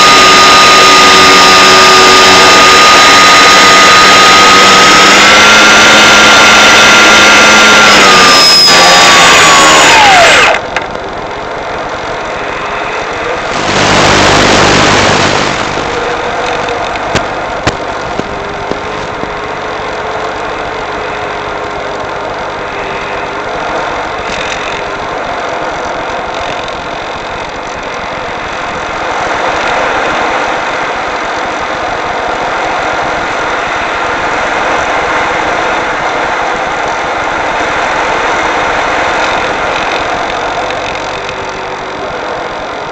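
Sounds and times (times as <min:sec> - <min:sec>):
steady electric motor hum: 0:00.0 - 0:42.9
burst of noise: 0:12.3 - 0:19.9.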